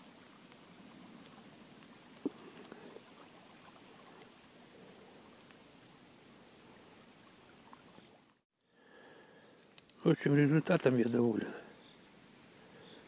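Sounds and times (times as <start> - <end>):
faint outdoor background: 0.0 - 13.0
faint ticks: 1.2 - 3.0, 5.4 - 5.9, 7.7 - 10.0.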